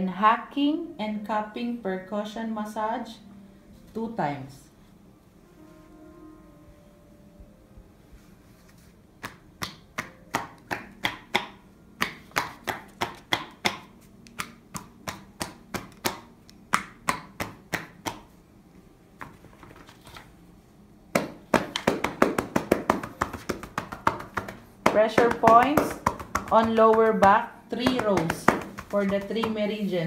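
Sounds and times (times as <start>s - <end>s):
hands slapping a back: 9.2s - 18.4s, 21.2s - 29.8s.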